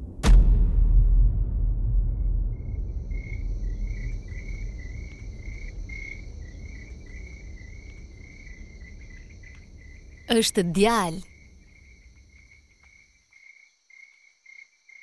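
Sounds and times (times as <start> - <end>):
low rumble: 0.0 - 3.6
crickets chirping: 2.5 - 15.0.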